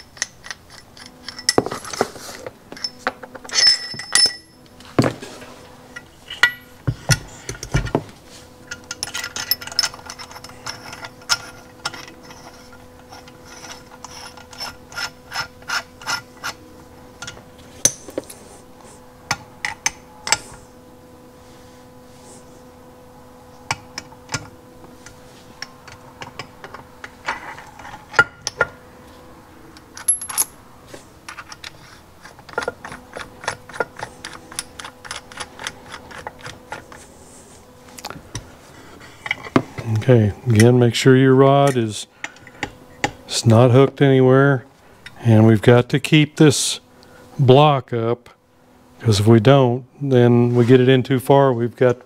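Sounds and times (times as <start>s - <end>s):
steel tool parts clicking: 31.3s - 36.9s.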